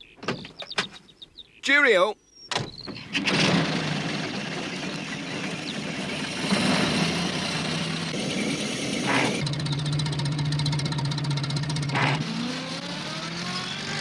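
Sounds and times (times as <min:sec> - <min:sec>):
van engine running: 0:03.0 - 0:14.0.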